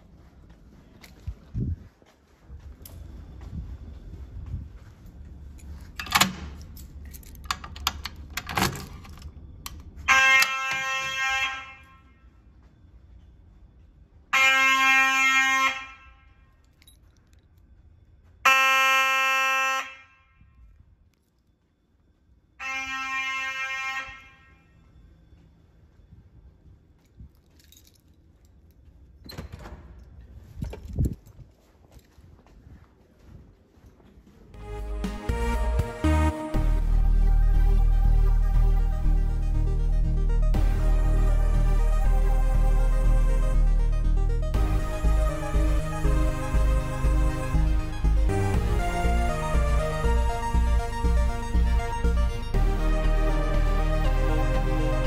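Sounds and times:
footsteps on carpet: 0.0s - 6.0s, 31.2s - 36.0s
fire alarm horn blast: 10.0s - 12.5s, 14.3s - 16.6s, 18.4s - 20.7s, 22.6s - 24.9s, 34.6s - 55.0s
jingling clatter: 27.0s - 28.9s.

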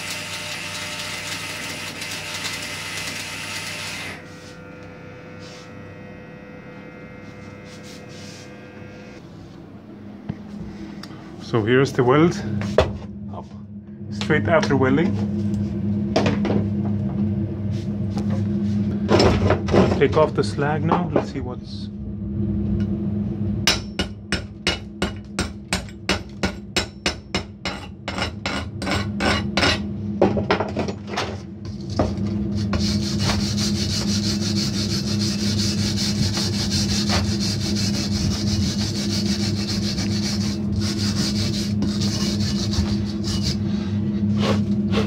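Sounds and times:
low hum: 4.2s - 45.0s
wire brush scrubbing metal: 5.3s - 5.8s, 7.3s - 8.6s, 32.4s - 45.0s.

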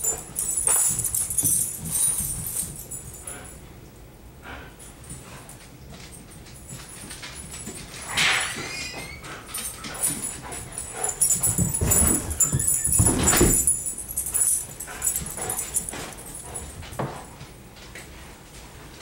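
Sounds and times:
paws thudding on carpet: 0.0s - 3.1s, 9.9s - 17.6s
dog noises: 8.1s - 17.1s.

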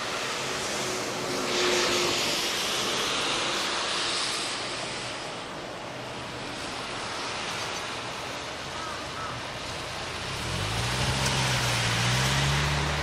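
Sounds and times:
low engine hum: 9.7s - 13.0s.

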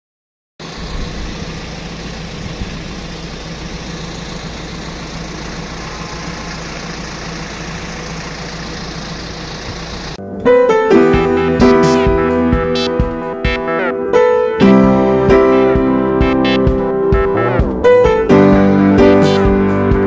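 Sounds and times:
road traffic engine hum: 0.6s - 20.0s
piano music: 10.2s - 20.0s.

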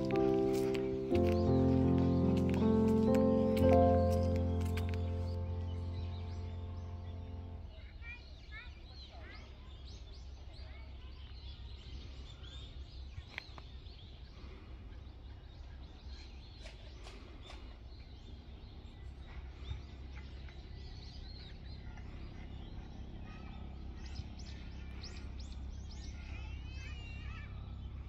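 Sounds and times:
low outdoor rumble: 0.0s - 8.0s
small birds chirping: 0.0s - 28.0s.

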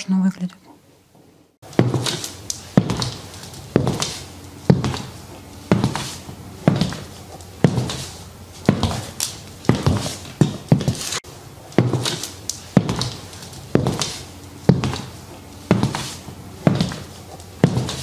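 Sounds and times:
heel clicks on hard floor: 1.8s - 3.2s, 3.8s - 5.1s, 6.7s - 8.0s, 8.7s - 11.0s, 11.8s - 15.1s, 15.7s - 18.0s.

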